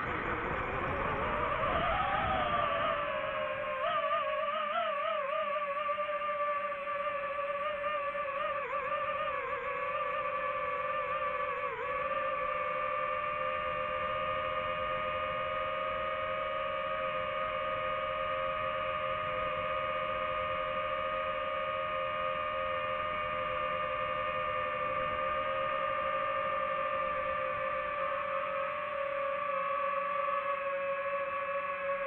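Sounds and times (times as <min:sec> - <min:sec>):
drone motors high whine: 0:00.0 - 0:32.0.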